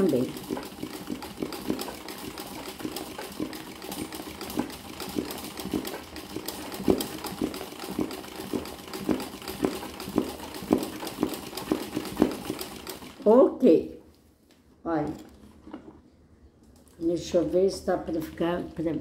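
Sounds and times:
sewing machine knocks: 0.0s - 13.1s
sewing machine stitching: 0.0s - 13.3s.

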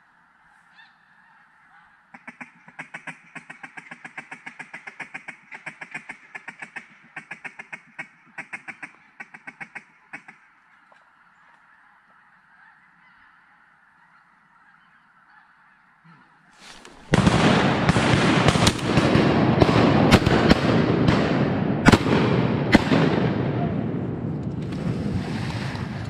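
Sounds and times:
waterfowl honking: 0.4s - 17.3s
sharp cracks: 16.6s - 26.0s.

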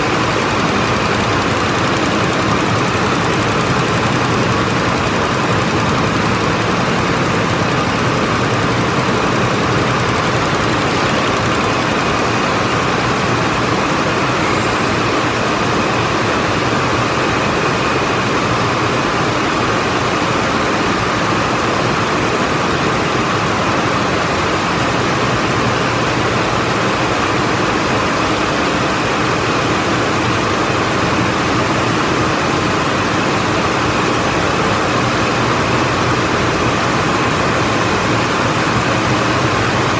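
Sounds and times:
looms weaving: 0.0s - 39.9s.

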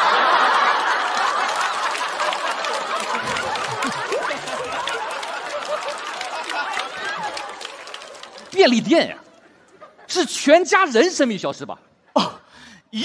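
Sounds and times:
studio audience laughing: 0.0s - 10.4s
scattered clapping: 0.4s - 9.0s.

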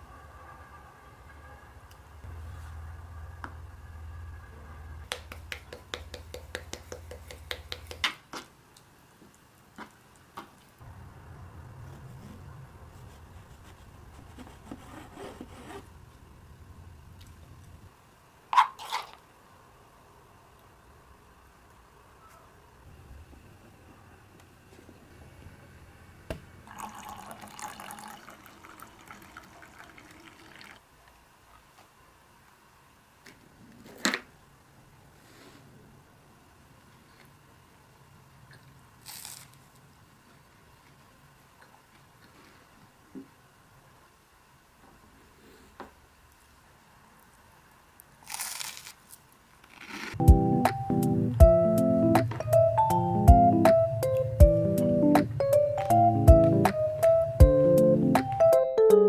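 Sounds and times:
low hum: 0.0s - 7.5s, 10.8s - 18.4s
hot water pouring into a mug: 26.6s - 30.9s.

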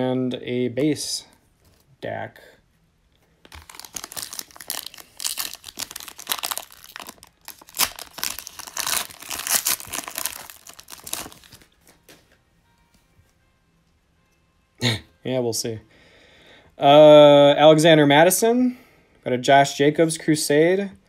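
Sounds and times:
foil wrapper tearing and crinkling: 3.5s - 11.7s.

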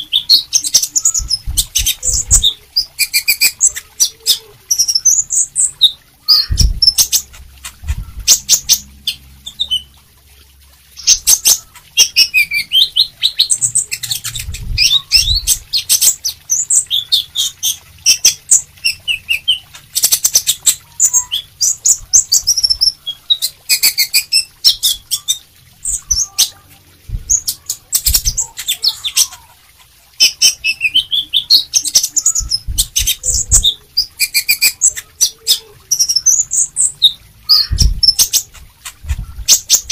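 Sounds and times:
bird twittering song: 0.0s - 10.0s, 10.9s - 29.5s, 30.2s - 39.9s
low thumps: 27.1s - 27.4s.

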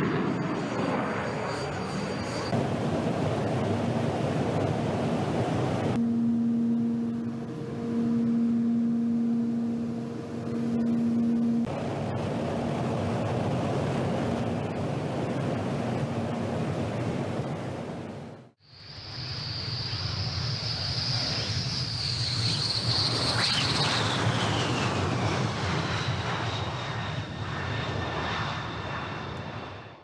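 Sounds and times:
high turbine whine: 0.0s - 30.0s
jet roar: 0.0s - 30.0s
steady low hum: 2.5s - 18.5s.

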